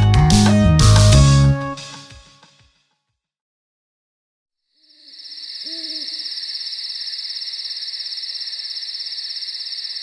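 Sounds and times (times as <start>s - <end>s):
crickets chirping: 4.7s - 10.0s
owl hoot: 5.0s - 6.7s.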